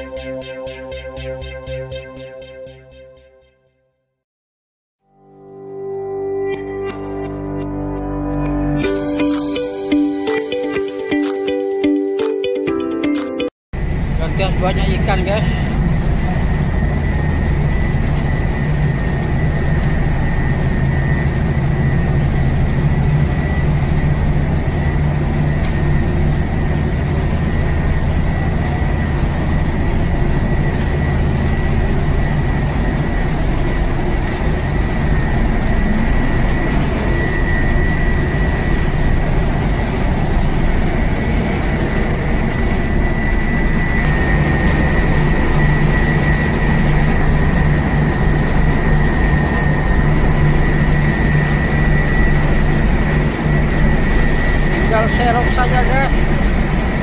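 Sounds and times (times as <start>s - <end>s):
ship engine humming with whine: 13.8s - 57.0s.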